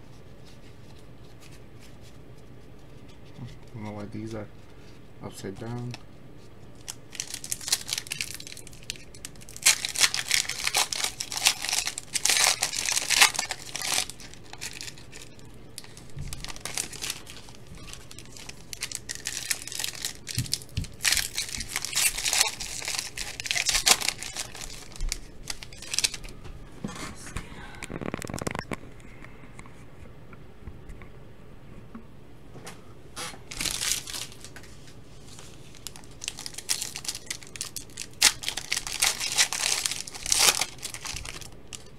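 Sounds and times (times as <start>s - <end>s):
card pack wrappers crinkling: 6.7s - 26.4s, 27.9s - 28.8s, 33.5s - 41.9s.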